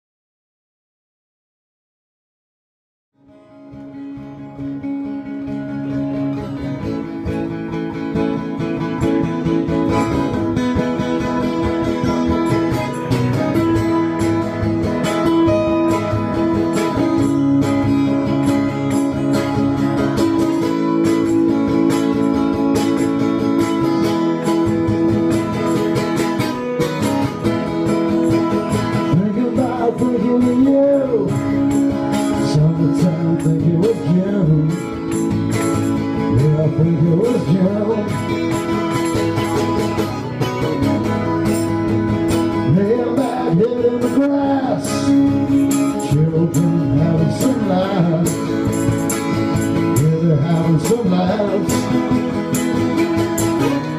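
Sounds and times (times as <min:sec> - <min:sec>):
acoustic guitars strumming: 0:03.2 - 0:53.9
man singing: 0:28.8 - 0:39.4, 0:42.4 - 0:53.9.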